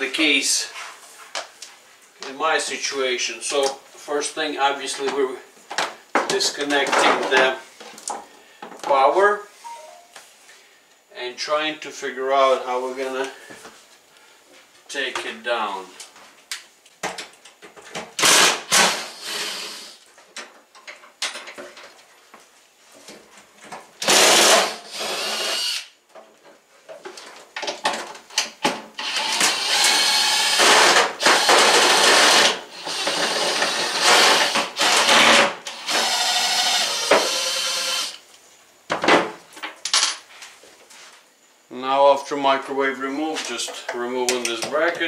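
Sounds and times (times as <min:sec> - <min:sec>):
cordless drill running: 0:18.2 - 0:19.9, 0:24.0 - 0:25.9, 0:29.0 - 0:38.2.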